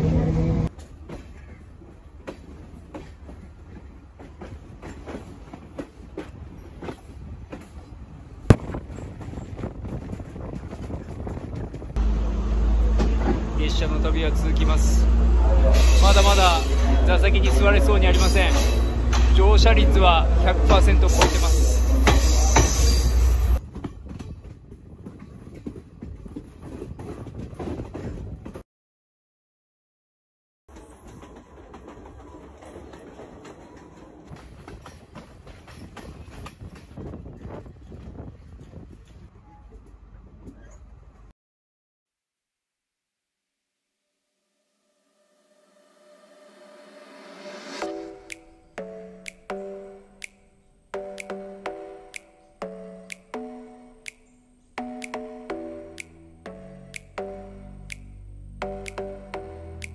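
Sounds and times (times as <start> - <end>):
train low rumble: 0.0 - 28.6, 54.6 - 59.9
train wheels clicking over rail joints: 0.7 - 12.0, 20.4 - 28.6, 30.7 - 40.7
wind buffeting microphone: 4.4 - 12.0, 23.6 - 28.6, 34.3 - 39.5
train wheels clacking: 20.5 - 28.1.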